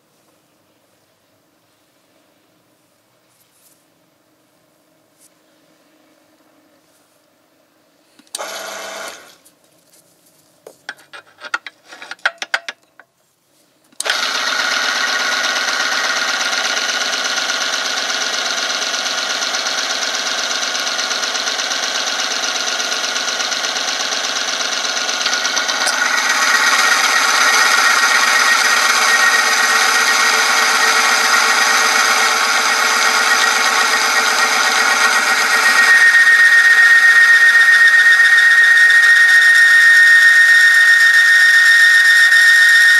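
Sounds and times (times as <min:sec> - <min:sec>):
high squeal: 0:25.1 - 0:42.9
motor rubbing and grinding: 0:25.2 - 0:42.9.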